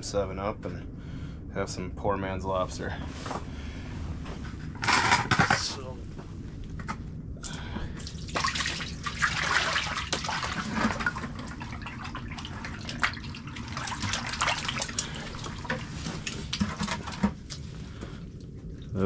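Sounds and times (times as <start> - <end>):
water pouring from a bucket: 8.0 - 17.6.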